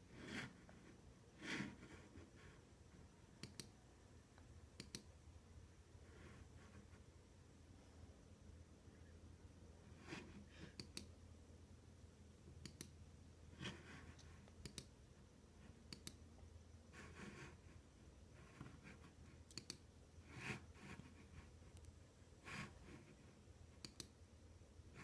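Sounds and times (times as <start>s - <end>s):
computer mouse clicks: 3.4s - 3.8s, 4.4s - 5.1s, 10.7s - 11.2s, 12.5s - 13.0s, 14.2s - 14.9s, 15.9s - 16.2s, 19.4s - 19.9s, 23.8s - 24.2s.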